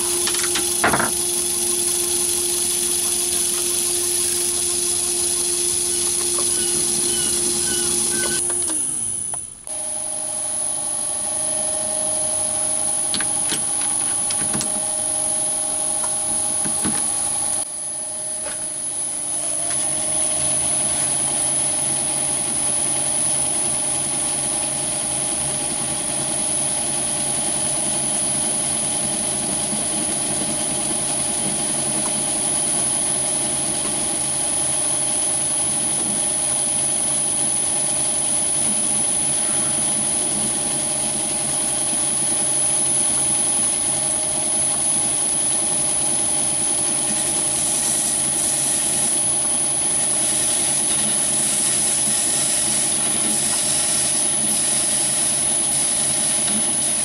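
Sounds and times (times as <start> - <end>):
high whine: 0.0 - 22.7
lathe motor hum: 0.0 - 25.2.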